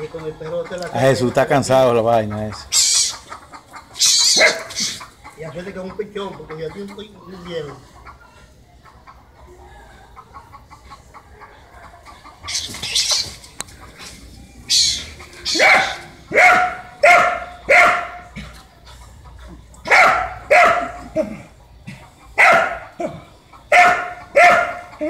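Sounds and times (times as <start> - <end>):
hissing rasping sounds: 2.6 - 5.2
dog barking: 4.2 - 4.8, 15.5 - 18.4, 19.8 - 21.2, 22.4 - 23.0, 23.7 - 25.0.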